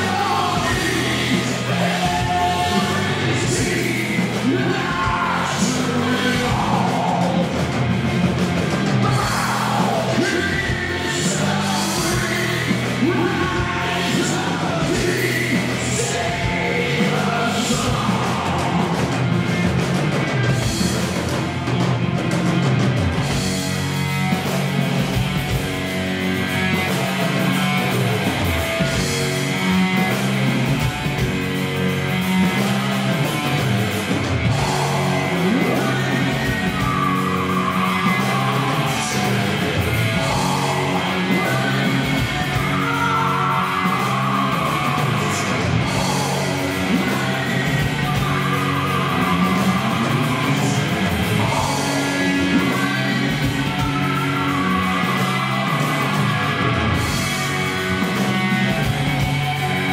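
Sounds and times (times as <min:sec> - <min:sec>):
man singing loudly: 0:00.0 - 0:07.6, 0:09.0 - 0:19.1, 0:34.5 - 0:56.8
live rock band playing: 0:00.0 - 0:59.9.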